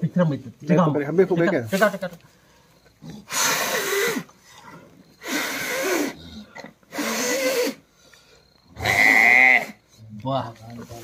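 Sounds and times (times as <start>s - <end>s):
man blowing breathy puffs: 3.3s - 4.3s, 5.2s - 6.1s.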